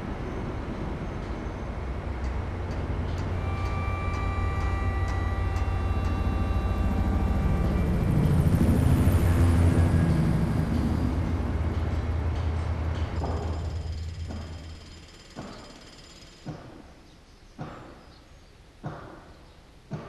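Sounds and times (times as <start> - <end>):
low steady rumble: 0.0 - 15.1
faint steady whine: 0.0 - 16.6.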